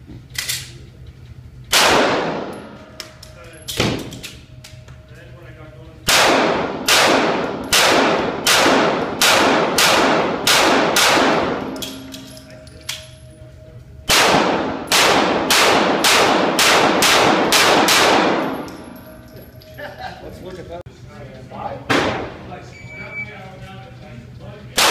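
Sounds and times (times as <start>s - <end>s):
pistol shots echoing indoors: 1.7s - 4.8s, 6.0s - 13.4s, 14.0s - 19.2s.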